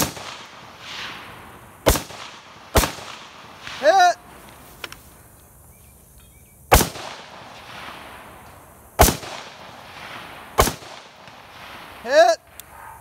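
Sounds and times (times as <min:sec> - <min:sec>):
rifle shots echoing: 0:00.0 - 0:04.1, 0:06.7 - 0:12.3.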